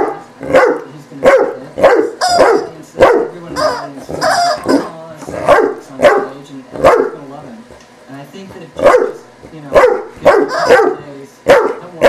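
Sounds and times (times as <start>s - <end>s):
rubber chicken toy squeaking: 2.2s - 2.4s, 3.6s - 4.7s.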